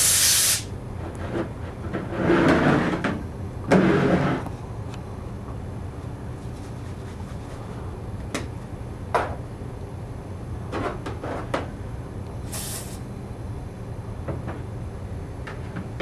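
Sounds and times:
spray hiss: 0.0 - 0.7, 12.5 - 13.0
steady low hum: 0.0 - 16.0.

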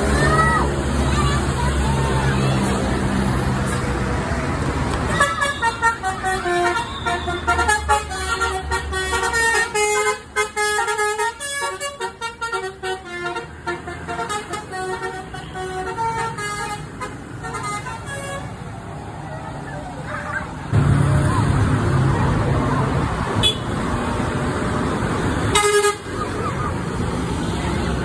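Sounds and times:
bus engine running: 0.0 - 28.0
bus musical horn tune: 5.2 - 18.5, 25.5 - 26.1.

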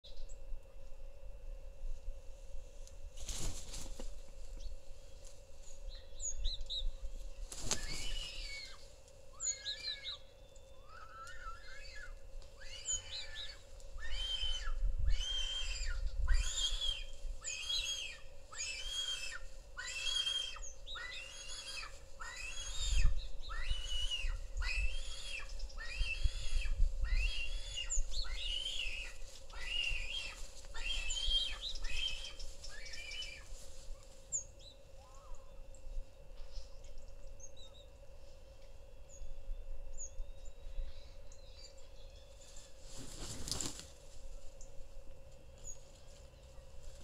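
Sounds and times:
faint small bird chirps: 5.9 - 8.8, 36.4 - 38.0
vulture high-pitched calls: 7.5 - 33.6.

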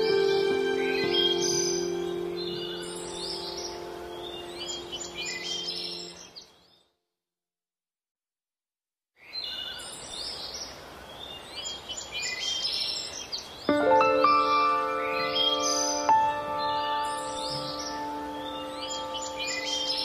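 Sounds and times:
sustained musical tones: 0.0 - 6.2, 13.7 - 20.0
birds chirping: 0.0 - 6.9, 9.2 - 20.0.

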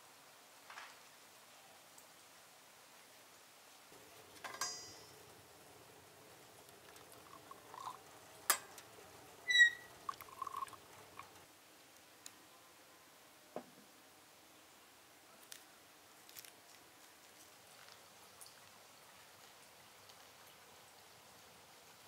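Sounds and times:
small handling knocks and clicks: 4.4 - 5.1
short ringing clink: 4.4 - 5.2.

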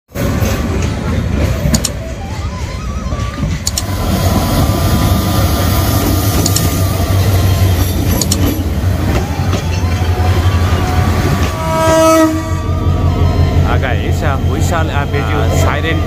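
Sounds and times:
train rumbling over rails: 0.1 - 16.0
sharp rail clacks: 6.0 - 6.8.

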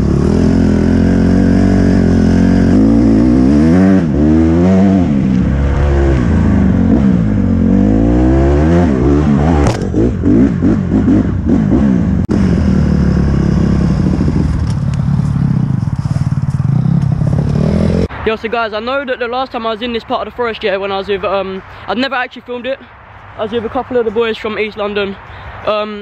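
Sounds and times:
dirt bike engine revving: 0.0 - 18.1.

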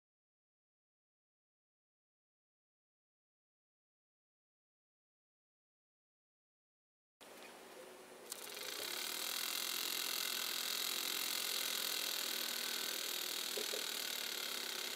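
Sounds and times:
miniature steam engine whirring: 8.3 - 14.9.

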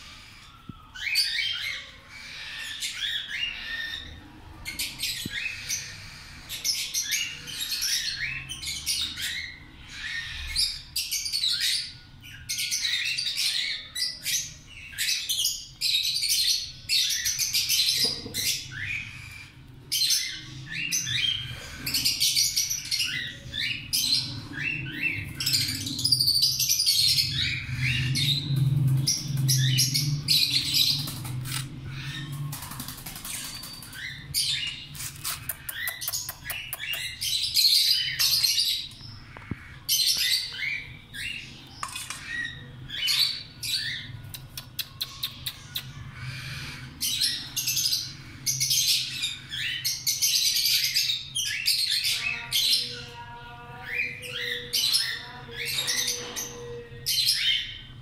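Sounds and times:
baby parrot squawking: 0.0 - 4.2, 44.8 - 49.8.

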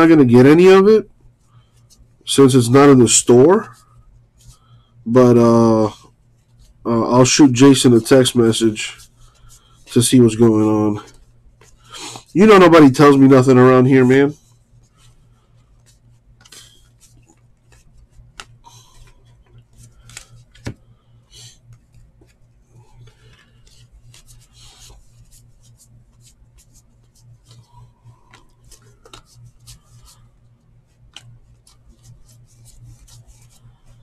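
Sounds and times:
low steady hum: 0.0 - 34.0
cards flipping and scraping: 14.9 - 30.3, 30.9 - 34.0.

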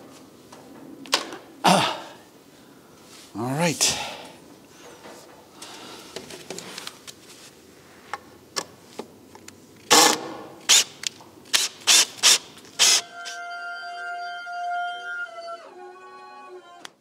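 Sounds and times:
cordless driver driving screws: 9.9 - 13.4.

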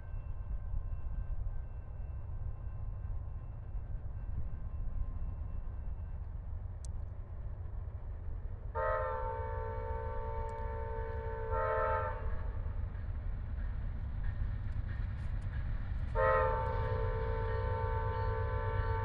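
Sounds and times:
locomotive air horn: 8.8 - 12.6, 16.2 - 19.0.

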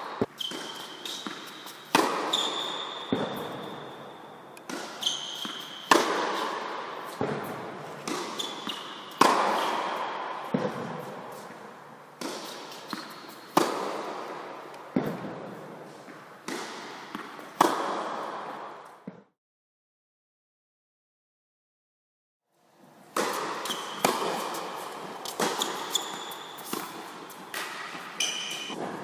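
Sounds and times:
tennis balls struck with rackets: 0.0 - 19.3, 23.1 - 29.0
tennis ball bounces: 0.1 - 3.9, 4.6 - 11.6, 12.2 - 19.2, 23.1 - 29.0
shoe squeaks on hard court: 0.2 - 6.5, 8.3 - 9.8, 12.4 - 13.5, 23.6 - 28.8.

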